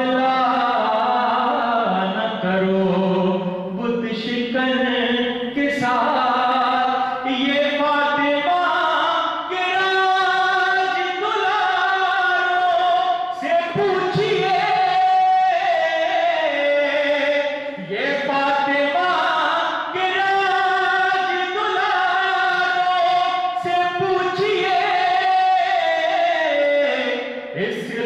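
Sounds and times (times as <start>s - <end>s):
man chanting: 0.0s - 28.0s.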